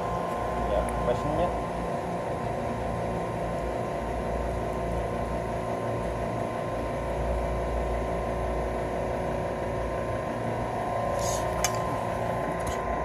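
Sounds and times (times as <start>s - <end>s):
air conditioner unit humming: 0.0s - 13.0s.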